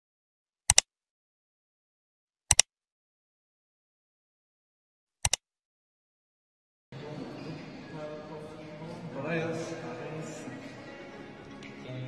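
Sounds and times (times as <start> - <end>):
mouse double click: 0.7 - 0.9, 2.5 - 2.7, 5.2 - 5.4.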